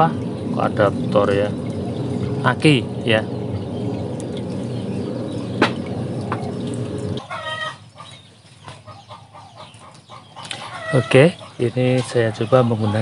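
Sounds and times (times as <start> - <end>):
water pump humming and churning: 0.0 - 13.0
chicken clucking: 7.2 - 11.6.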